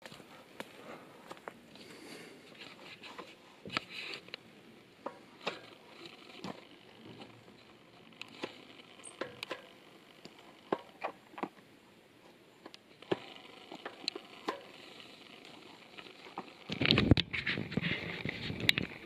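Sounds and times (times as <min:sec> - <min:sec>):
rustling noise: 0:00.0 - 0:04.4, 0:13.2 - 0:19.0.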